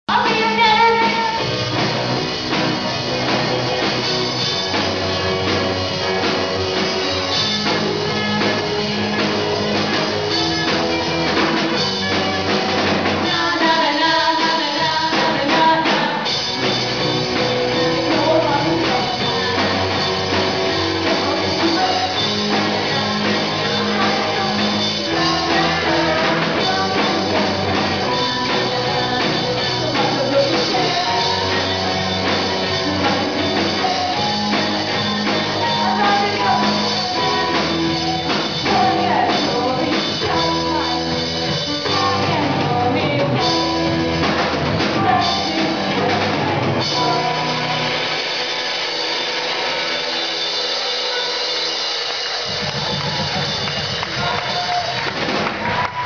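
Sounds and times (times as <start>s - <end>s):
drum kit: 0.0s - 56.0s
keyboard: 0.0s - 56.0s
person singing: 0.1s - 1.6s, 7.4s - 48.3s
electric guitars: 0.1s - 56.0s.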